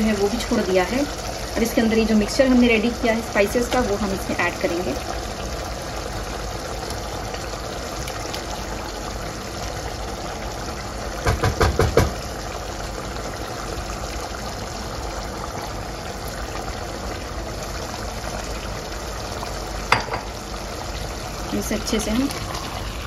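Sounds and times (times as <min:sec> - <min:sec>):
chicken sizzling in a pot: 0:00.0 - 0:23.0
spoon knocking against a bowl: 0:19.9 - 0:20.3.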